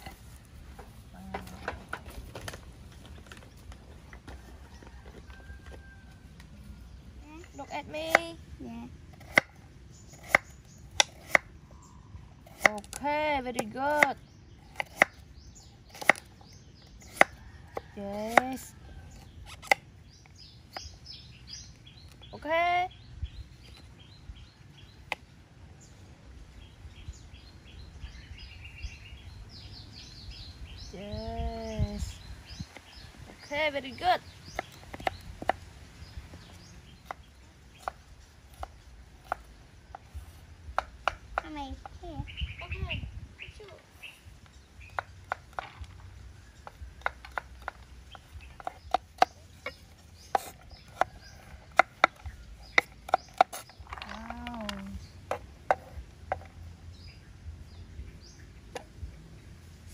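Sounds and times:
small birds chirping: 0.0 - 59.9
knife chopping on wooden board: 9.2 - 9.5, 10.1 - 11.5.

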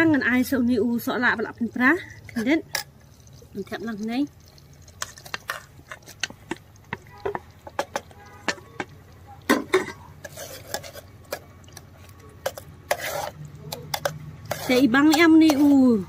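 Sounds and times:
metal spoon scraping metal: 4.5 - 8.9, 9.5 - 16.0.

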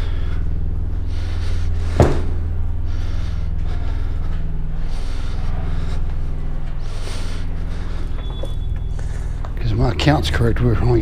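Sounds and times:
low mechanical drone: 0.0 - 11.0
sharp knock: 2.0 - 2.4.

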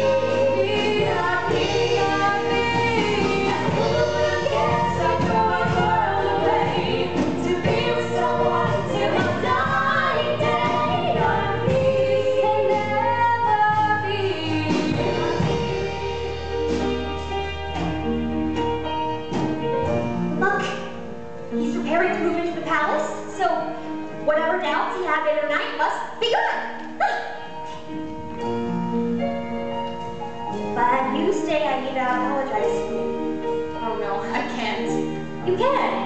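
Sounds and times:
two women singing a duet: 0.0 - 15.7
instrumental accompaniment: 0.0 - 36.0.

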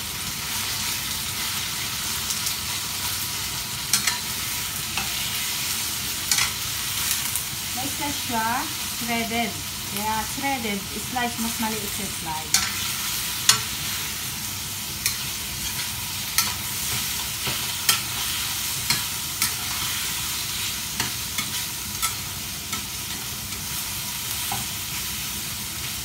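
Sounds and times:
chicken sizzling in hot oil: 0.0 - 26.0
metal spatula scraping a wok: 15.0 - 23.7.

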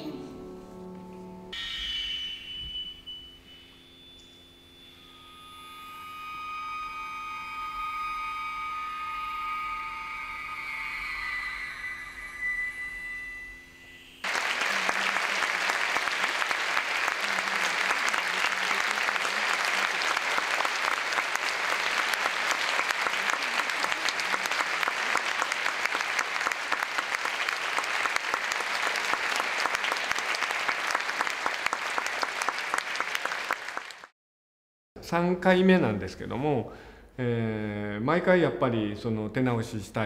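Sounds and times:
electronic tone: 2.5 - 14.2
audience applauding: 14.2 - 34.1.

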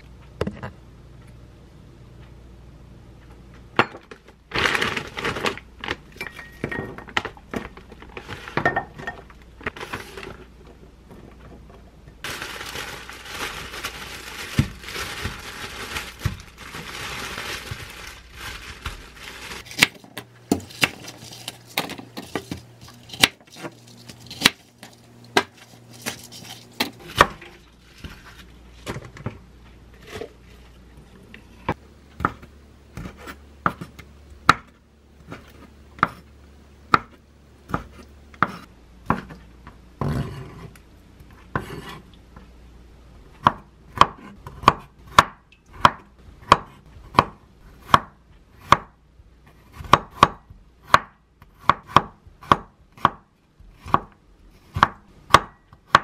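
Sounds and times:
plastic wrapping crinkling: 4.5 - 6.2, 12.2 - 26.8.

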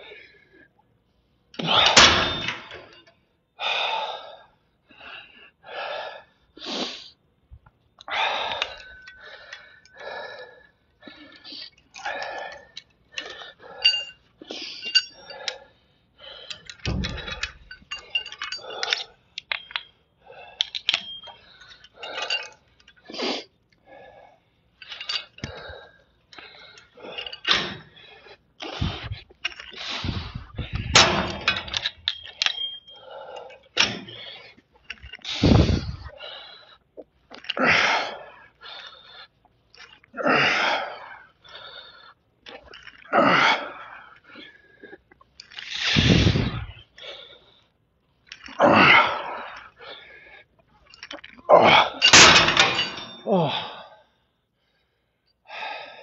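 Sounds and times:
man breathing heavily: 0.0 - 0.8, 1.6 - 7.3, 8.0 - 50.9, 51.6 - 56.0
metallic cable clinks: 8.4 - 10.0, 11.4 - 15.7, 16.4 - 23.1, 24.8 - 28.0, 28.6 - 36.1, 50.8 - 53.5.

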